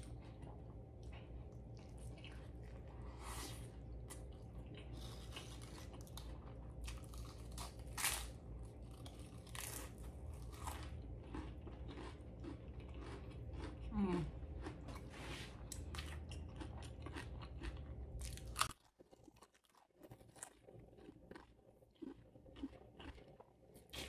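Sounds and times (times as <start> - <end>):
chewing burger: 0.0 - 24.0
crisp crunches of chips: 4.9 - 13.8.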